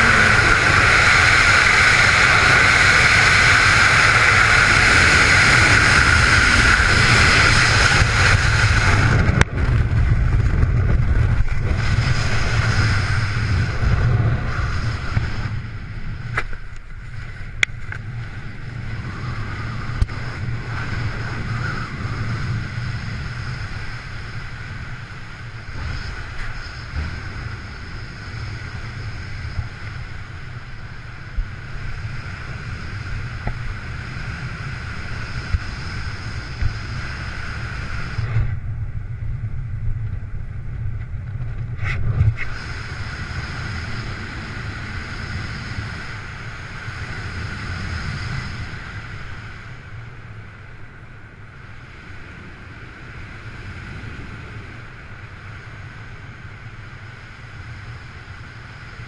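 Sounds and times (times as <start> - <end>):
wind rushing across microphone: 0.0 - 59.0.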